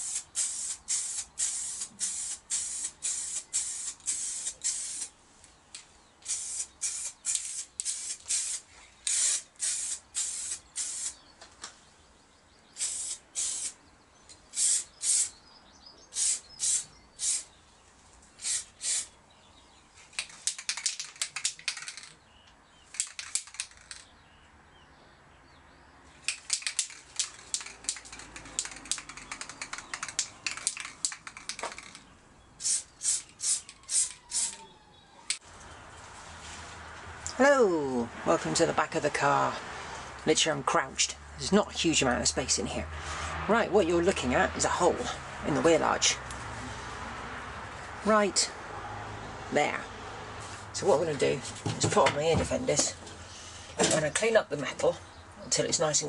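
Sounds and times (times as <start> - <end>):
aerosol spray hissing bursts: 0.0 - 5.1, 6.3 - 11.2, 12.8 - 13.8, 14.6 - 15.3, 16.2 - 17.5, 18.4 - 19.1, 32.6 - 34.6
quick clicking rattle: 20.1 - 22.2, 22.9 - 24.1, 26.3 - 32.1.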